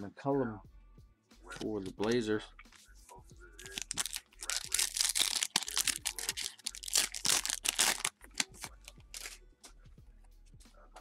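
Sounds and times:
foil wrapper crinkling and tearing: 3.6 - 9.4.

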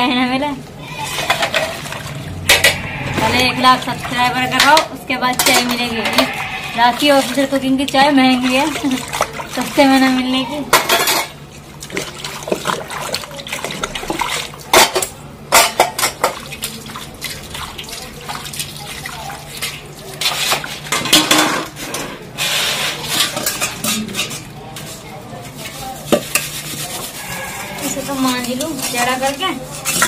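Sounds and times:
water rinsing: 0.7 - 21.8
steel bowls and pots clanking: 0.8 - 30.0.

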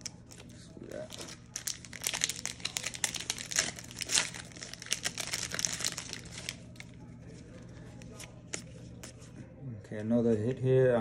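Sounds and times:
plastic wrapper crinkling: 0.0 - 7.0.

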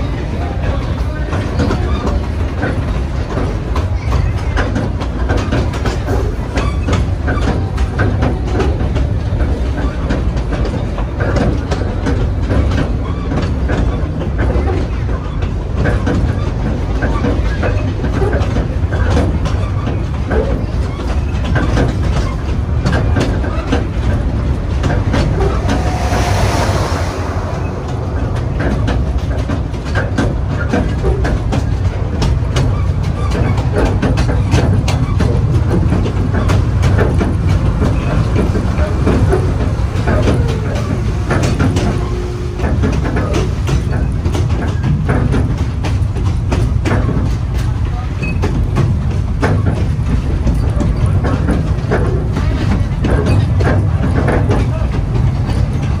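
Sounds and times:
train cars rumbling: 0.0 - 56.0
wheels clacking over rail joints: 0.0 - 56.0
steam hiss: 25.0 - 30.2.

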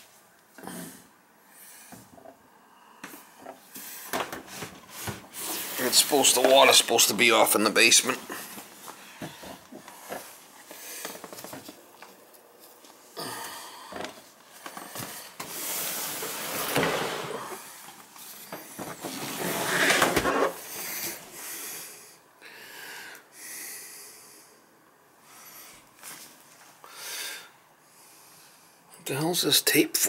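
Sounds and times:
man breathing heavily: 8.2 - 11.4, 13.1 - 15.4, 20.6 - 26.0, 26.8 - 28.9.

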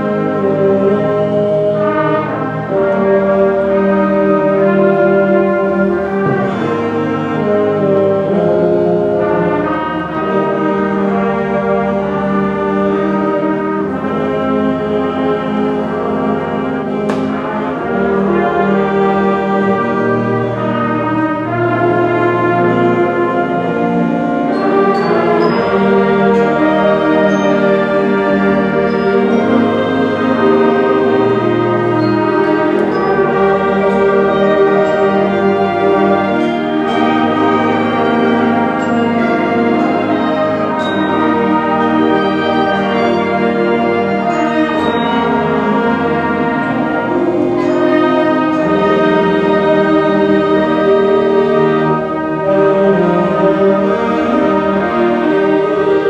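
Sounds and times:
brass and woodwind chords: 0.0 - 56.0.

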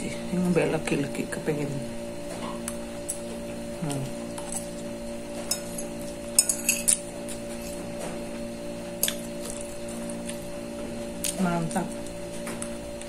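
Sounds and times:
steady low hum: 0.0 - 13.0
fork clinking on ceramic plate: 5.5 - 7.0.

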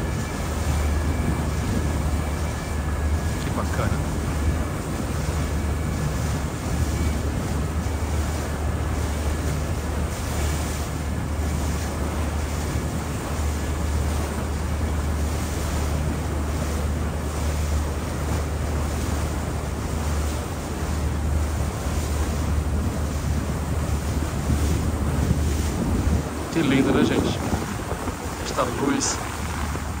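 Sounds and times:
wind noise on microphone: 0.0 - 3.5, 21.5 - 30.0
boat engine humming: 0.0 - 30.0.

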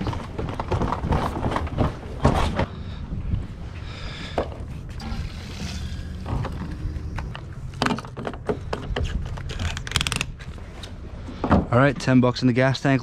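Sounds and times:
low steady rumble: 2.7 - 11.9.

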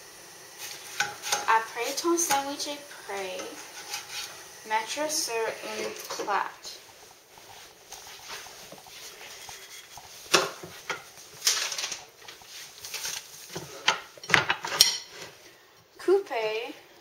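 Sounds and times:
utensils knocking and scraping plate: 0.9 - 2.7, 3.3 - 4.4, 9.3 - 15.3.

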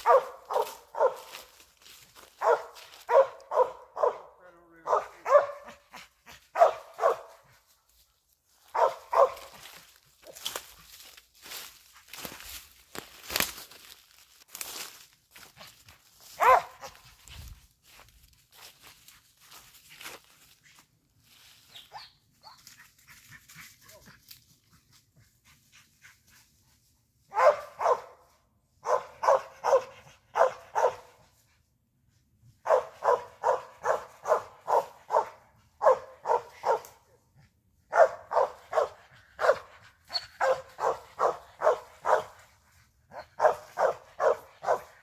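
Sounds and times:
dog barking: 0.0 - 1.6, 2.2 - 7.6, 8.7 - 10.6, 16.2 - 17.0, 27.3 - 31.2, 32.6 - 37.2, 37.8 - 42.5, 43.1 - 45.0
rustling in dry leaves: 0.0 - 3.7, 6.3 - 25.0.

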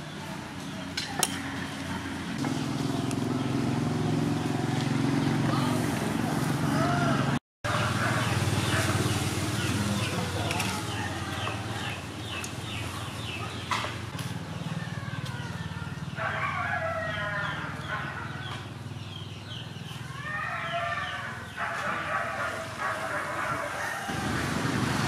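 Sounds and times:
rooster crowing: 6.6 - 8.8, 14.7 - 18.4, 20.1 - 24.4.

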